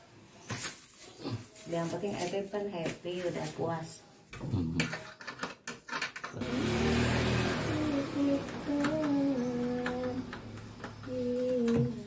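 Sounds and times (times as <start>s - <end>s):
hands clicking plastic parts: 4.8s - 6.4s, 8.4s - 12.0s
person humming a slow tune: 7.3s - 12.0s.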